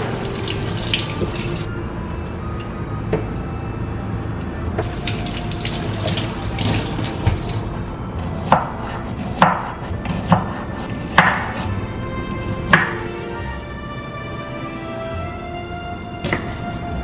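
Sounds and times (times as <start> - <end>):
tap water running into sink: 0.0 - 1.7, 4.8 - 7.6
music: 0.0 - 17.0
knife chopping on wooden board: 8.4 - 11.7, 12.6 - 13.0.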